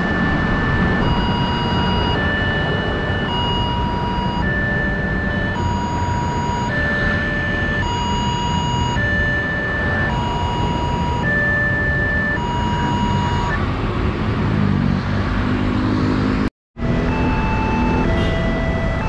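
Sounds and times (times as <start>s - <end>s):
level crossing alarm tones: 0.0s - 13.8s, 16.8s - 19.0s
road traffic rumble: 0.0s - 19.0s.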